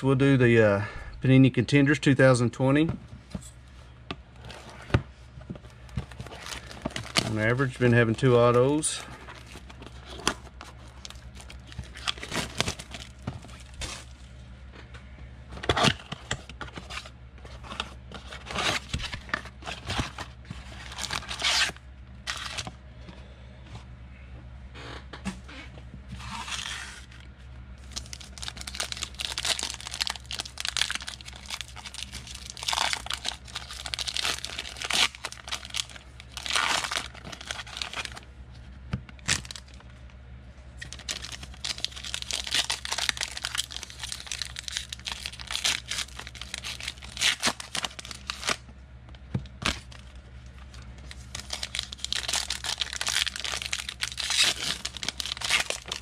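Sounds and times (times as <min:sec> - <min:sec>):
foil wrappers tearing and crinkling: 0:06.0 - 0:14.2, 0:17.7 - 0:22.7, 0:26.2 - 0:27.2, 0:27.8 - 0:38.2, 0:39.2 - 0:39.8, 0:40.8 - 0:48.6, 0:49.4 - 0:50.1, 0:50.7 - 0:56.0.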